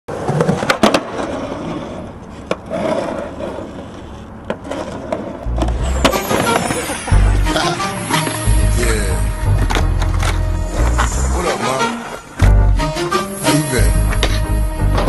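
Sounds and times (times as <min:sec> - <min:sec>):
skateboard popping and landing: 0:00.1 - 0:07.0
skateboard wheels rolling on concrete: 0:00.1 - 0:15.0
music with heavy bass beat: 0:05.5 - 0:11.5, 0:12.4 - 0:15.0.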